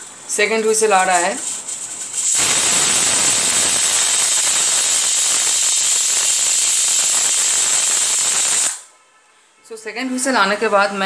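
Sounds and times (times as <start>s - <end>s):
pressure cooker whistling: 2.2s - 8.8s.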